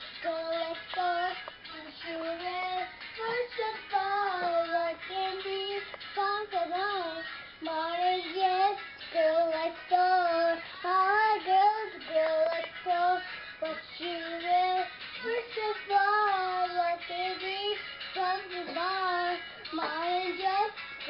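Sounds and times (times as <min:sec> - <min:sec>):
girl singing: 0:00.0 - 0:20.8.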